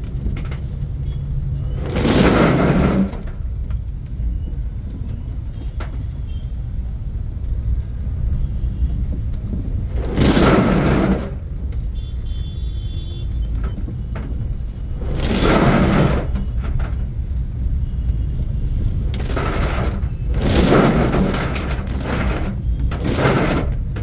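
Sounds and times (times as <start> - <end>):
car driving on wet road: 0.0 - 24.0
rush of water hitting car: 1.6 - 3.7, 9.8 - 11.9, 13.5 - 17.7, 18.8 - 24.0.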